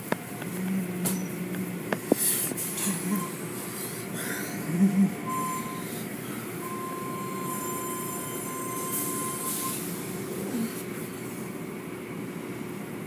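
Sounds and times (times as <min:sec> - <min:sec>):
car wash machinery rumbling: 0:00.0 - 0:13.0
thin high squeal: 0:06.6 - 0:09.9.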